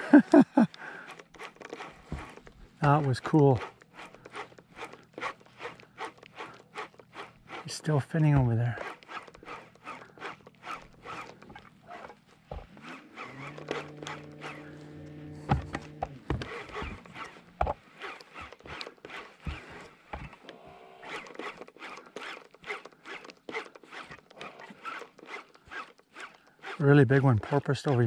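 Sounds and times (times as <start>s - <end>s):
steady low hum: 0.0s - 21.3s
zipper tapping on microphone: 8.4s - 17.8s.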